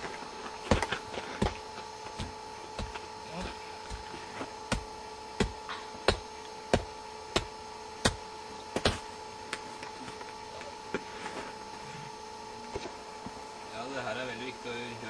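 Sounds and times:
electrical hum: 0:00.0 - 0:15.0
hand tool thudding on carcass: 0:02.2 - 0:08.2.

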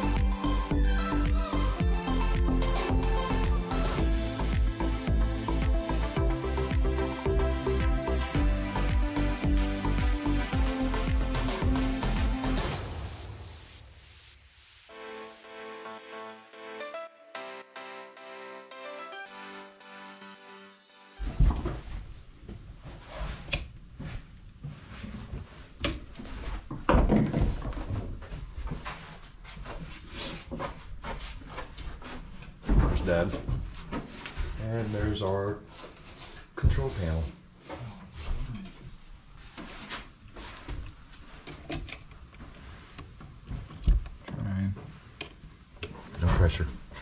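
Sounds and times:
rustling of hand work: 0:21.3 - 0:47.0.

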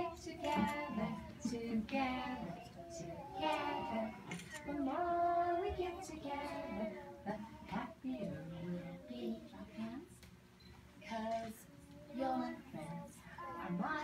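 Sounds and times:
children singing: 0:00.0 - 0:07.9.

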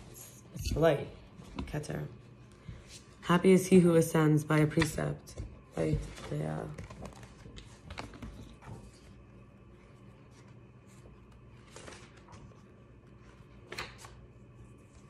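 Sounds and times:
low steady hum: 0:00.0 - 0:15.0
paper sheets rustling: 0:05.8 - 0:09.2, 0:09.8 - 0:15.0.

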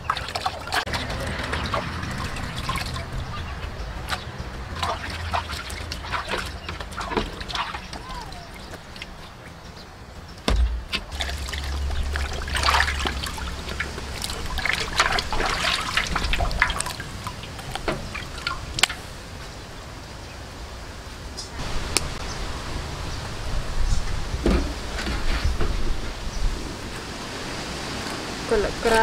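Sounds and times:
water trickling and splashing: 0:00.0 - 0:29.0
sharp knock: 0:10.5 - 0:11.1.

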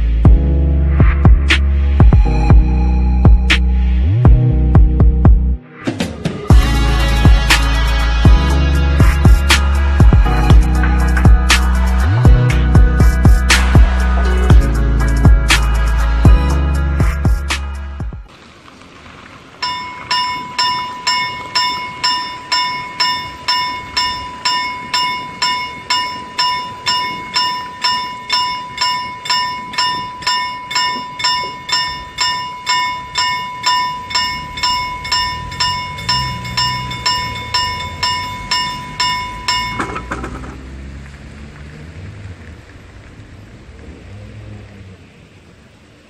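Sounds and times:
low rumble: 0:00.0 - 0:18.3
level-crossing bell ringing: 0:19.6 - 0:40.5.

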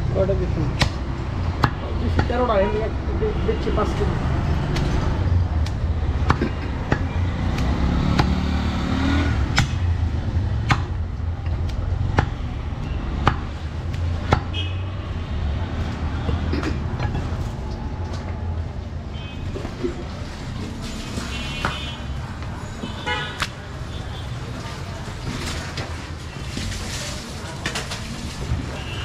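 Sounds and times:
cleaver chopping meat and bone: 0:00.7 - 0:02.4, 0:05.6 - 0:08.5, 0:09.5 - 0:09.9, 0:10.6 - 0:12.5, 0:13.1 - 0:14.6, 0:23.4 - 0:23.6.

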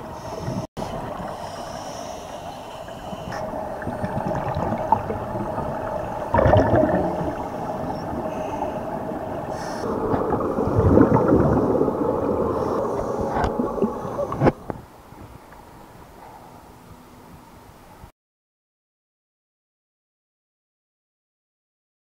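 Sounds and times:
underwater hum: 0:00.0 - 0:17.8
divers exhaling bubbles: 0:03.3 - 0:14.7
bubbling rush underwater: 0:03.4 - 0:14.6.

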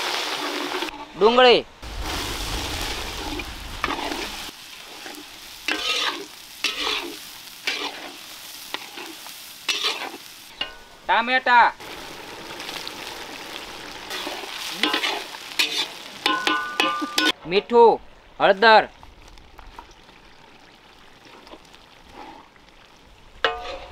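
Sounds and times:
onions sizzling in hot oil: 0:00.0 - 0:00.9, 0:01.8 - 0:17.4
steel spatula scraping a pan: 0:03.9 - 0:10.9, 0:14.1 - 0:17.4, 0:23.5 - 0:23.9.

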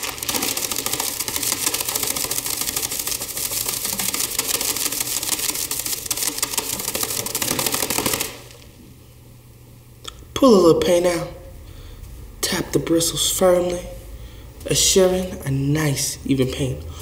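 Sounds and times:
paintbrush slapping wooden easel: 0:00.0 - 0:08.6.

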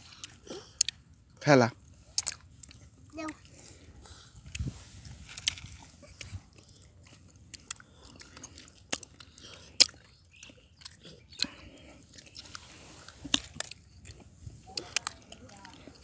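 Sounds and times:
faint chewing: 0:00.0 - 0:16.0.

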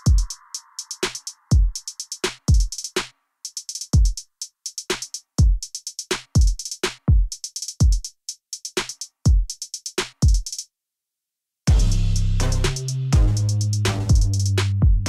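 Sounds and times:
hi-hat ticks: 0:00.0 - 0:10.7, 0:11.7 - 0:14.8
deep kick drums: 0:11.7 - 0:15.0.

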